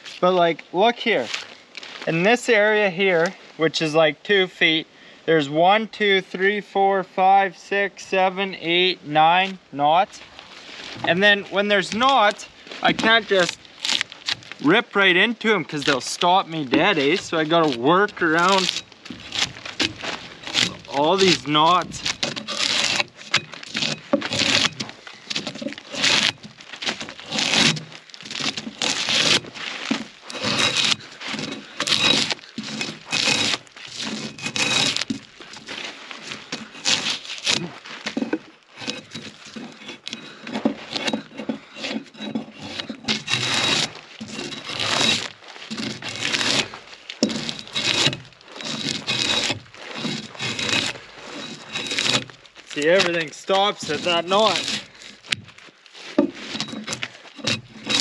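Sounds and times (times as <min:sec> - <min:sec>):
drawknife scraping bark off log: 0:10.2 - 0:58.0.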